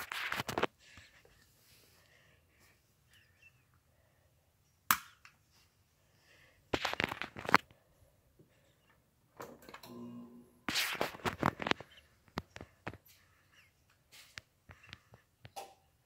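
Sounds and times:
crackly noise bursts: 6.7 - 7.7.

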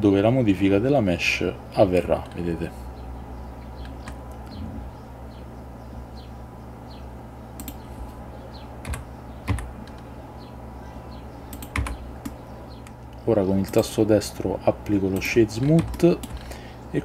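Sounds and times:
keyboard key presses: 11.5 - 13.0.

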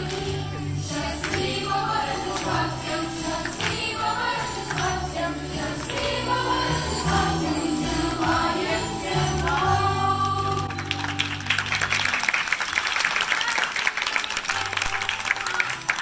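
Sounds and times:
music with singing: 0.0 - 11.5
audience applause: 9.3 - 16.0.

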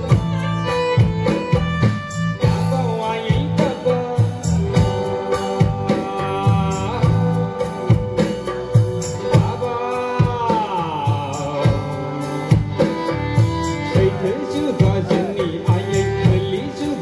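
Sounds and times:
live band music with singer: 0.0 - 17.0.

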